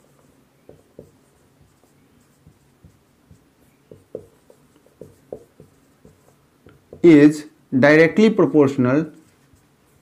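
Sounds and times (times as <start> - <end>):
marker squeaking on whiteboard: 0.0 - 7.2.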